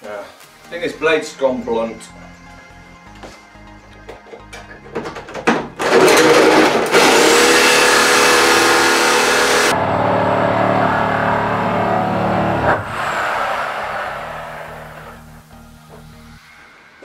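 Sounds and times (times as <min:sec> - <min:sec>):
reciprocating saw cutting steel: 0:06.5 - 0:15.4.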